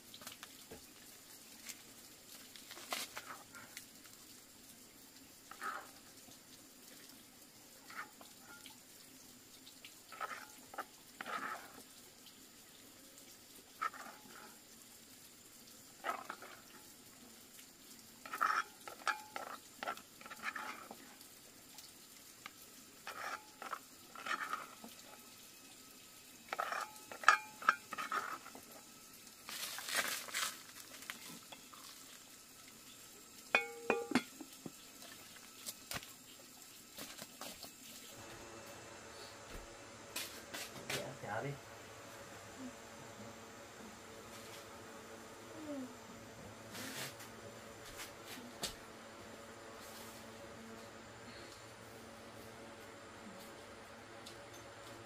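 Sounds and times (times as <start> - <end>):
utensil clinking against cookware: 18.3 - 19.6, 26.5 - 28.4, 33.5 - 34.5.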